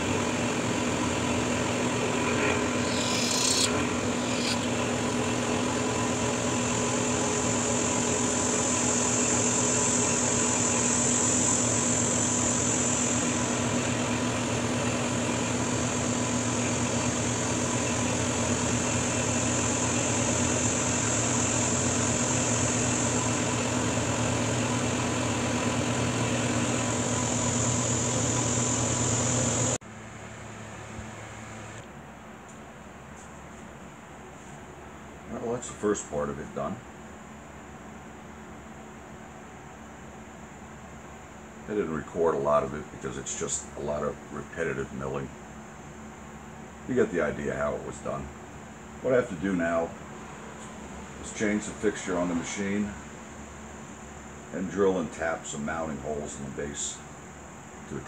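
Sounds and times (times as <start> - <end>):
milling machine cutting metal: 1.1 - 7.6.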